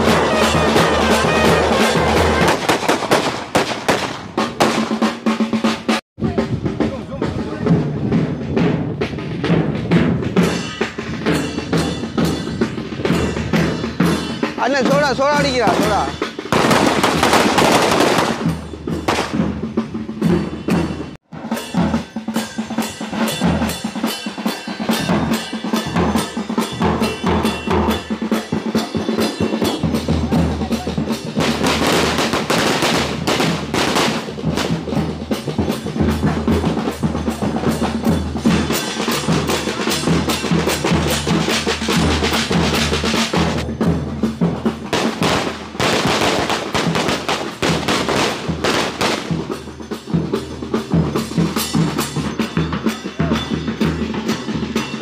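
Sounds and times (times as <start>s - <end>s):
firecrackers rattling: 0.0s - 5.0s, 13.1s - 19.7s, 31.4s - 36.3s, 44.8s - 49.8s.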